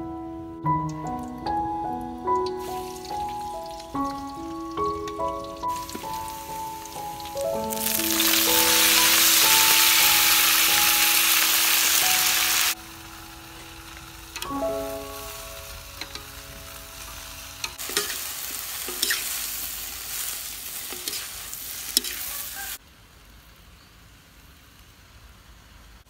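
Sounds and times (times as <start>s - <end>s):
vegetables sizzling in a wok: 2.4s - 26.0s
metal tongs clinking and scraping: 17.6s - 19.4s, 20.9s - 22.4s.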